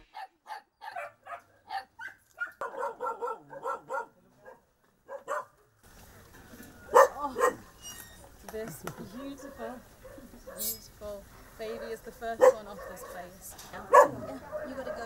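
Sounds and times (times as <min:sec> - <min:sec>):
puppies barking and yipping: 0:00.0 - 0:04.1, 0:06.8 - 0:08.1, 0:12.4 - 0:15.0.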